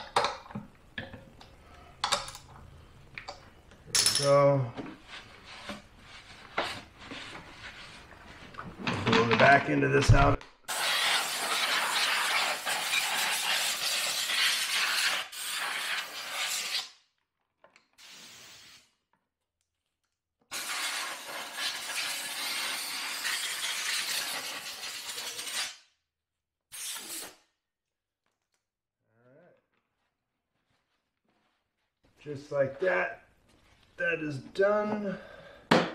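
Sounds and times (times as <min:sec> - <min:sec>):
compressed air blow gun hissing: 0:10.7 - 0:16.7, 0:18.0 - 0:18.8.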